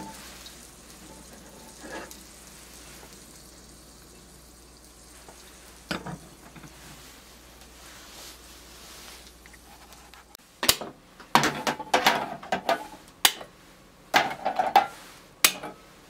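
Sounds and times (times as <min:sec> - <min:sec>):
lids and spatula clattering on skillets: 0:00.0 - 0:02.2, 0:05.8 - 0:07.1, 0:10.7 - 0:13.5, 0:14.1 - 0:15.8.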